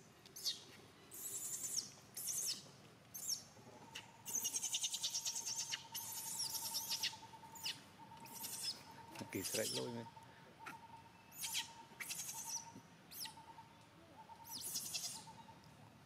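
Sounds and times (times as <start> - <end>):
baby monkey screaming: 4.4 - 8.8.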